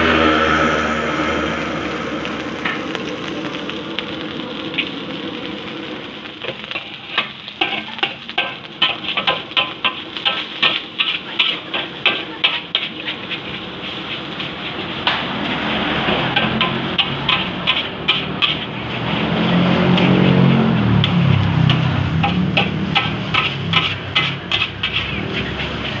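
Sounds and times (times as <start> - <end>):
steady hiss: 0.0 - 19.2
metal spatula clanking on wok: 6.8 - 14.0, 16.1 - 18.8, 21.0 - 26.0.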